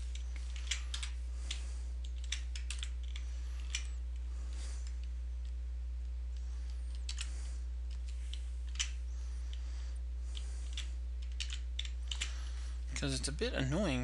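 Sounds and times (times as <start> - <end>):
low electrical hum: 0.0 - 14.0
computer keyboard keystrokes: 2.1 - 3.9, 10.4 - 12.3.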